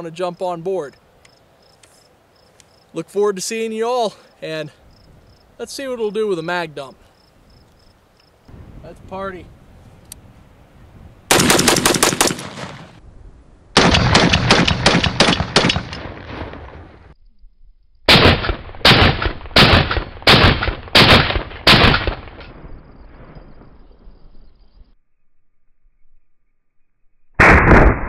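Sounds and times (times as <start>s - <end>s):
rapid rifle fire: 11.3s - 13.0s, 13.8s - 16.5s, 18.1s - 22.3s
rifle shots with echo: 11.3s - 13.0s, 13.8s - 16.8s, 18.1s - 22.4s.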